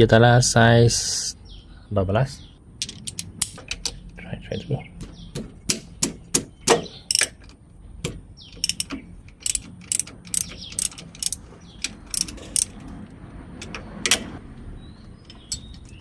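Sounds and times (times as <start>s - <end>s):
ratchet wrench clicking: 7.1s - 7.6s, 8.5s - 12.8s.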